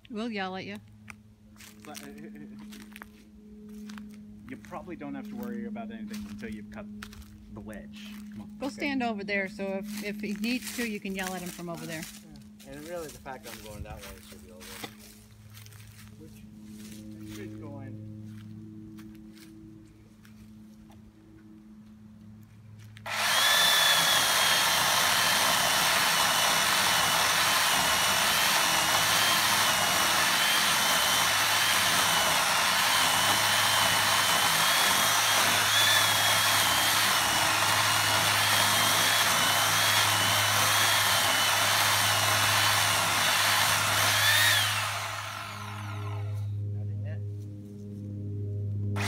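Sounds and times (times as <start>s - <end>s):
electric chainsaw cutting wood: 8.4s - 15.7s, 22.9s - 46.7s.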